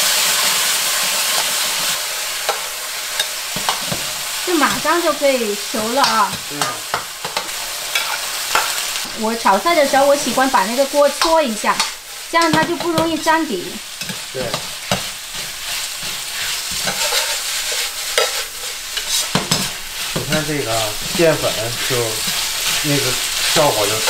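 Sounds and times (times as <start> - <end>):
minced meat sizzling in a wok: 0.0 - 24.0
metal ladle scraping a wok: 1.3 - 4.4, 6.3 - 9.0, 13.9 - 21.2.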